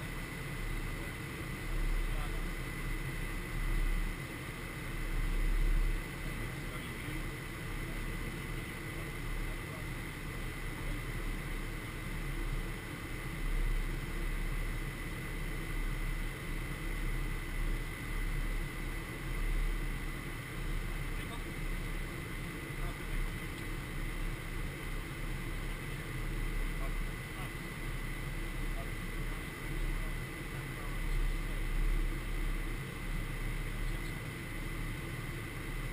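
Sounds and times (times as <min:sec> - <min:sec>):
jet airflow and engine noise: 0:00.0 - 0:35.9
thin steady high tone: 0:00.0 - 0:35.9.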